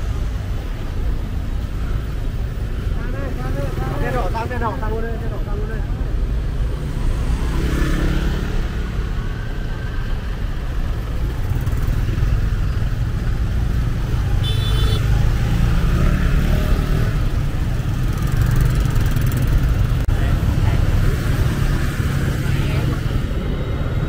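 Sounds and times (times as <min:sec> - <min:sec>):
road traffic: 0:00.0 - 0:24.0
motorbike noise: 0:05.4 - 0:24.0.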